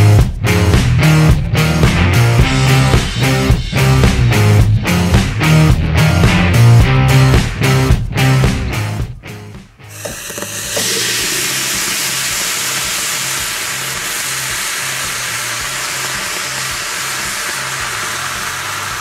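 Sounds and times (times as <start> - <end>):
candy sizzling and hissing: 9.9 - 19.0.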